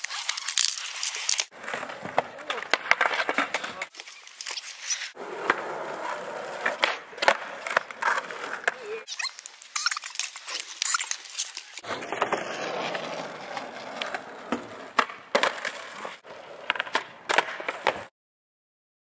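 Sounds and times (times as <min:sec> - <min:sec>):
skateboard wheels rolling: 0:00.0 - 0:18.1
skateboard clacks: 0:01.6 - 0:04.1, 0:05.2 - 0:09.0, 0:11.8 - 0:18.1.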